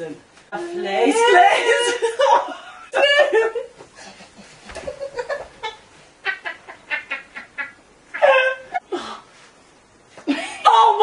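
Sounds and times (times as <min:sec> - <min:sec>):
women laughing: 0:01.2 - 0:08.8.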